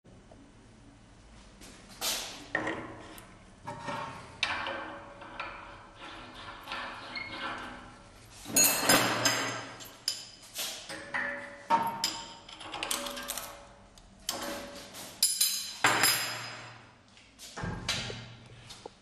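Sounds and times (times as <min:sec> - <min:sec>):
metal clinks and knocks: 0:08.5 - 0:13.7.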